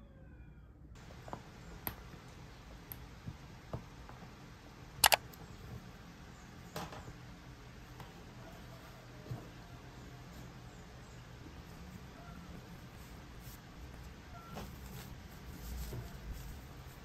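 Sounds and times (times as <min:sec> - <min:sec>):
sharp double click: 0:05.0 - 0:05.2.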